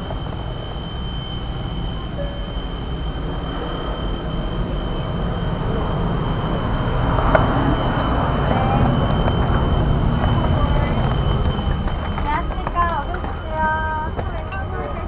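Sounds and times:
airliner ground rumble: 0.0 - 15.0
high whine: 0.0 - 15.0.

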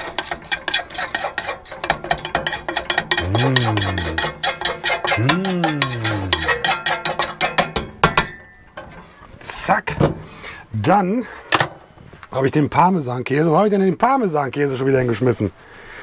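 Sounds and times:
metal pan scraping and tapping: 0.0 - 9.0.

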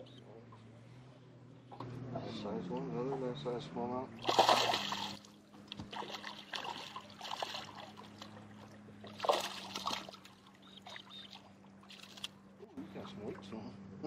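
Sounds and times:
steady low hum: 0.0 - 14.0
fish splashing in water: 4.2 - 12.4.

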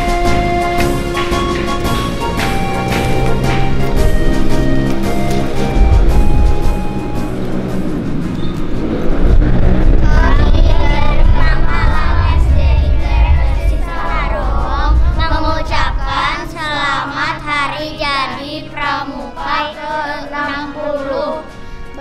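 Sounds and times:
heavy bass: 0.0 - 18.0
backing music track: 0.0 - 22.0
children singing: 9.7 - 22.0.

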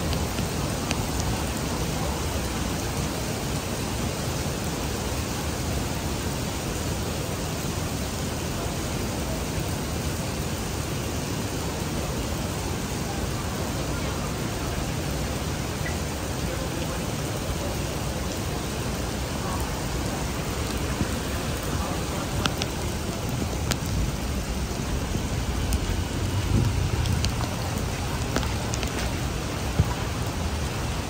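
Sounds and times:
sharp drip ticks: 0.0 - 1.7, 19.6 - 31.0
heavy rain on street: 0.0 - 31.0
low rumble: 20.8 - 30.8.

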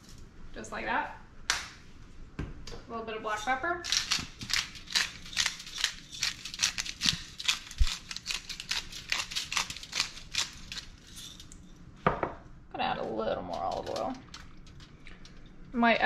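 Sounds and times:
pepper grinder crunching: 3.3 - 11.6, 13.0 - 15.4.

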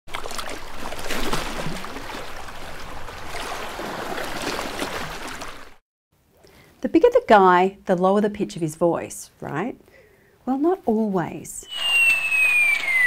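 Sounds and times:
rushing water: 0.1 - 5.8
gliding calls: 11.6 - 13.0.

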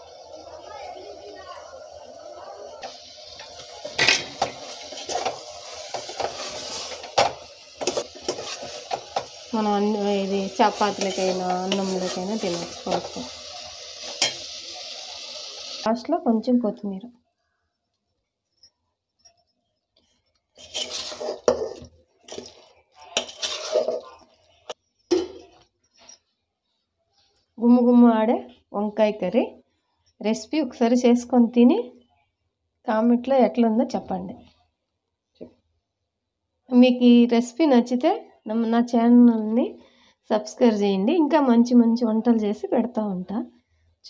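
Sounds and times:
ladle scraping metal pot: 2.8 - 15.4, 20.5 - 25.6
ladle clinking on pot rim: 20.6 - 24.3.

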